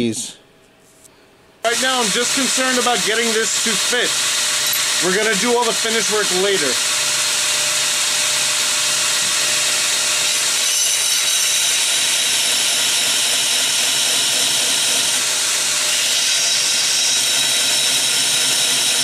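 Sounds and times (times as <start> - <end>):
belt grinder grinding metal: 1.7 - 19.0.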